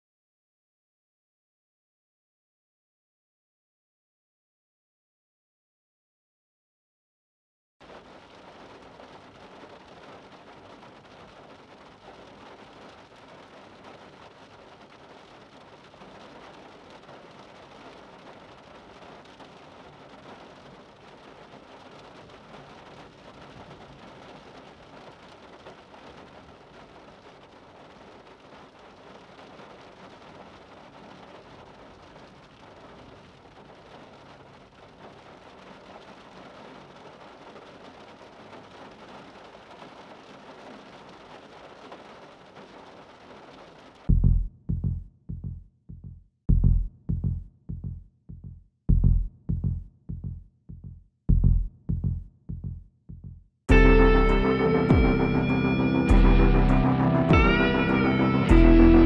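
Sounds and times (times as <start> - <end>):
rain pattering on window glass: 7.8 - 44.4, 53.7 - 59.0.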